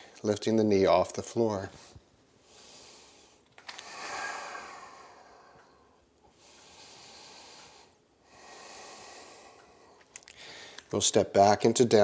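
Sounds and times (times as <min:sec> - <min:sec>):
person breathing deeply: 0:01.8 - 0:10.9.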